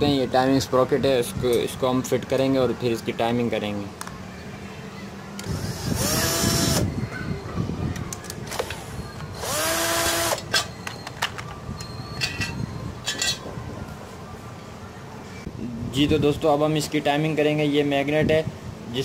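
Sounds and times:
electric screwdriver spinning: 5.4 - 6.9, 9.4 - 10.4.

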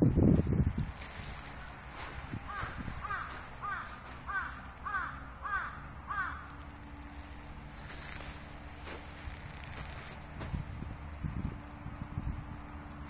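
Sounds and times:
crow cawing: 2.4 - 6.8.

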